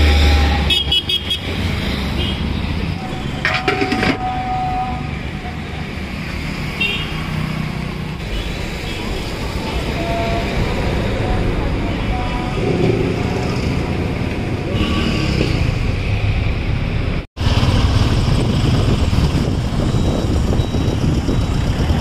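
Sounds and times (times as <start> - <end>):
busy street traffic: 0.0 - 22.0
dense road noise: 0.0 - 22.0.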